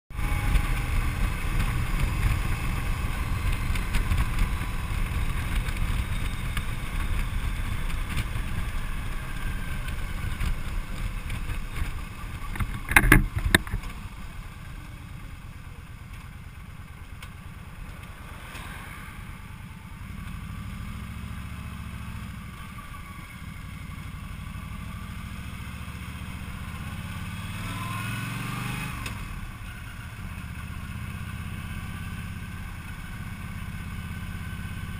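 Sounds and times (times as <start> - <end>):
motorcycle engine running: 0.1 - 18.6, 19.2 - 34.9
sharp knocks: 12.5 - 13.8.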